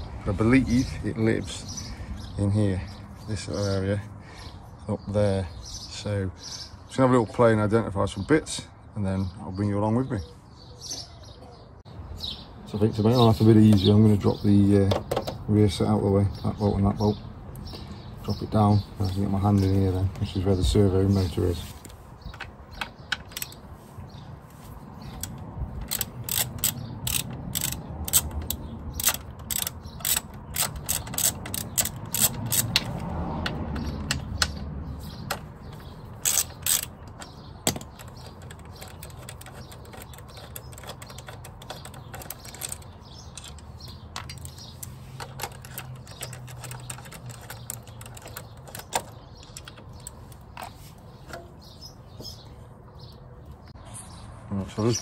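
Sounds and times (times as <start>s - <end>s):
socket ratchet clicking: 25.1s - 51.5s.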